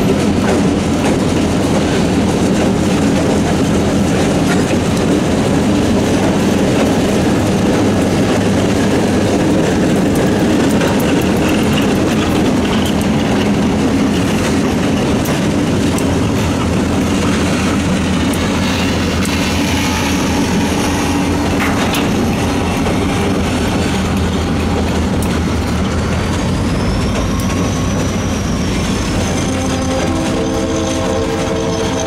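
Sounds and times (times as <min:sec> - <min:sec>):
diesel locomotive engines droning: 0:00.0 - 0:32.0
wheels clattering over rail joints: 0:00.0 - 0:32.0
faint high squeal: 0:26.5 - 0:32.0.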